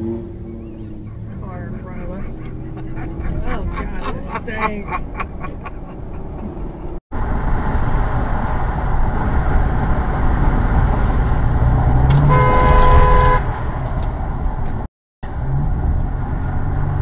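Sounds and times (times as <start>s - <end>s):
vehicle road and engine rumble: 0.0s - 17.0s
car horn blast: 12.1s - 13.5s.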